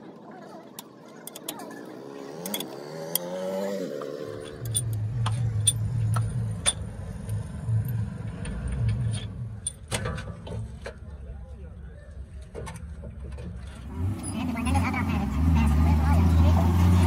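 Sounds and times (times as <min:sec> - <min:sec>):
vehicle engine rumbling: 0:00.0 - 0:17.0
metallic clicks of parts handled: 0:01.2 - 0:01.7, 0:02.4 - 0:03.3, 0:04.4 - 0:11.0.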